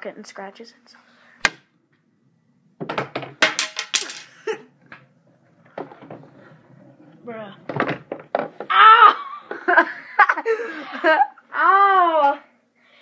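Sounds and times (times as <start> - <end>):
pool balls clacking: 2.8 - 8.7.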